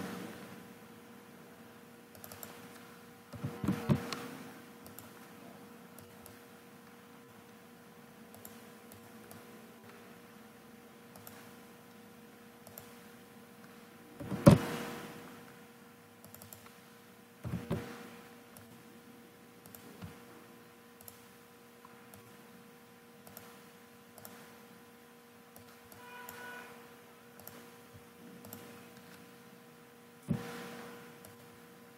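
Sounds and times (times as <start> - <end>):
steady hum: 0.0 - 31.9
mouse and keyboard clicks: 2.2 - 4.2, 11.1 - 11.5, 28.4 - 29.2.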